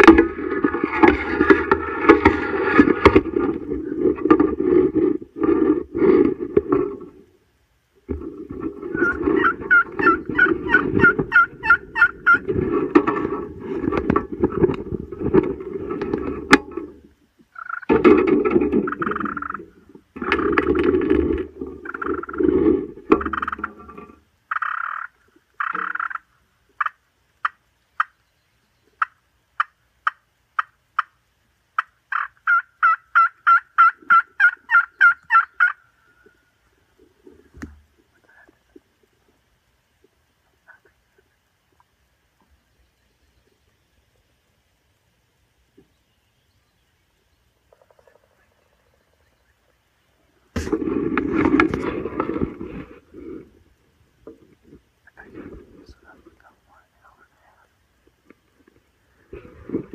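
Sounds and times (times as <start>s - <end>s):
turkey clucking: 8.2s - 14.2s, 17.5s - 18.0s, 18.7s - 20.8s, 21.8s - 23.8s, 24.5s - 26.2s, 26.8s - 28.2s, 31.8s - 36.3s
turkey yelping: 8.9s - 12.5s, 17.6s - 17.9s, 31.8s - 36.3s.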